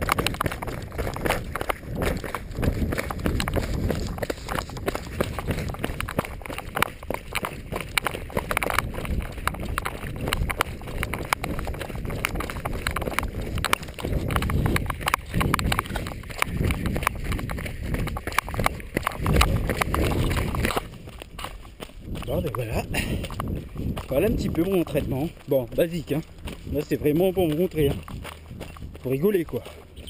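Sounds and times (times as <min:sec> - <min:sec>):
camera handling rumble: 0:00.0 - 0:21.6
wind on microphone: 0:00.0 - 0:29.2
running footsteps on dirt path: 0:00.0 - 0:30.0.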